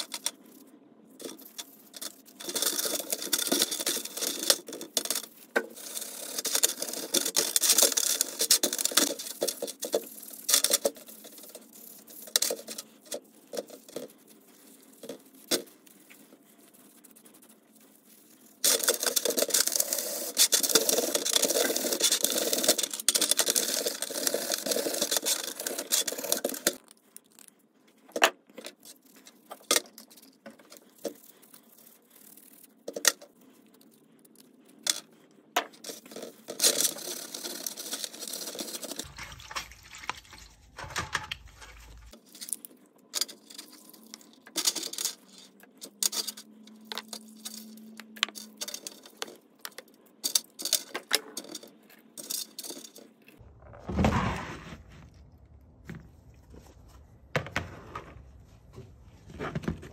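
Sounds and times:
steel wool scrubbing metal parts: 0:38.7 - 0:42.2.

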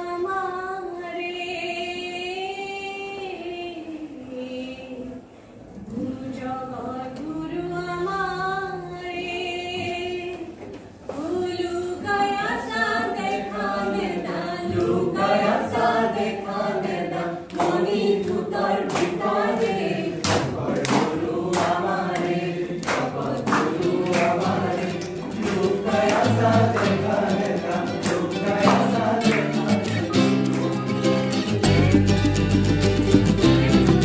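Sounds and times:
group of voices singing: 0:00.0 - 0:31.8
strummed acoustic guitar: 0:23.4 - 0:34.0.

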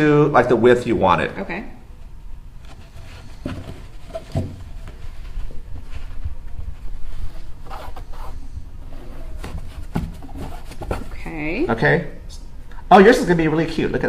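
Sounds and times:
fabric being folded: 0:04.7 - 0:11.1.

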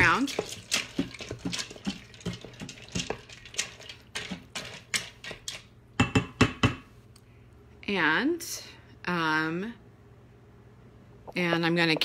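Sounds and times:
spoon scraping metal pot: 0:00.0 - 0:05.7.

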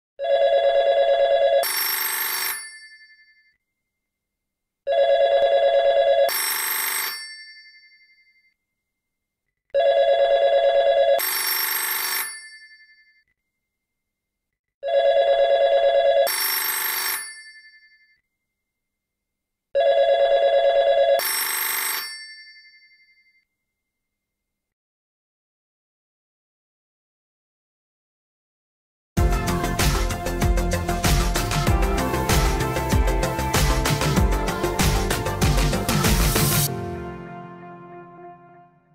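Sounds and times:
cell phone ringtone ringing: 0:00.2 - 0:03.6, 0:04.9 - 0:08.6, 0:09.8 - 0:13.3, 0:14.8 - 0:18.2, 0:19.8 - 0:23.5.

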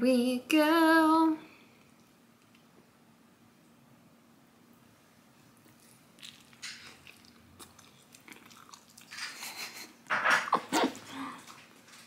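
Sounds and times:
wet chewing noises: 0:05.5 - 0:09.8.

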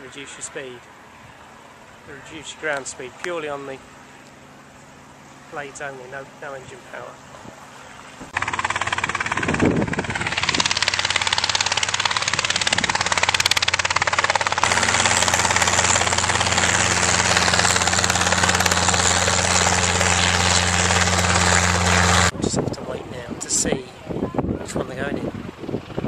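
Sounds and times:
steady low hum: 0:01.9 - 0:24.0
helicopter rotor noise: 0:08.3 - 0:22.4, 0:24.6 - 0:26.0.

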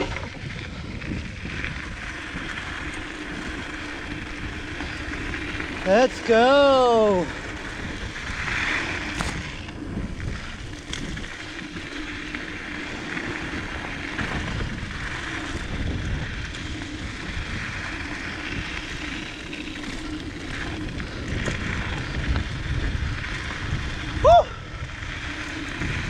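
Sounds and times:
wind on microphone: 0:00.0 - 0:26.0
bike knocks and rattles: 0:07.4 - 0:24.0.

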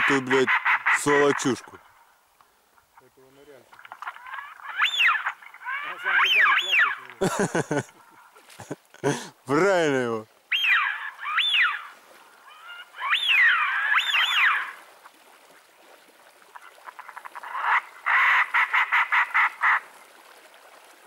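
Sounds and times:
ducks whistled calls: 0:00.0 - 0:01.6, 0:04.0 - 0:07.2, 0:10.5 - 0:15.2, 0:16.6 - 0:19.8.

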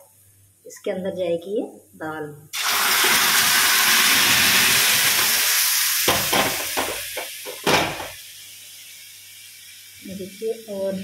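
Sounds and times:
food sizzling in hot oil: 0:02.5 - 0:11.0.

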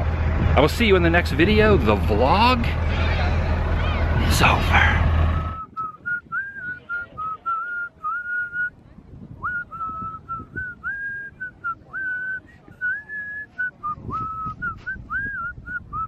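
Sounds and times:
person whistling a tune: 0:05.6 - 0:08.7, 0:09.4 - 0:16.0.

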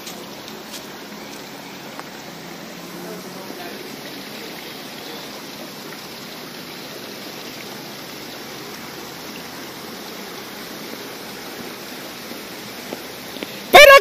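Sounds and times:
stream flowing: 0:00.0 - 0:14.0.

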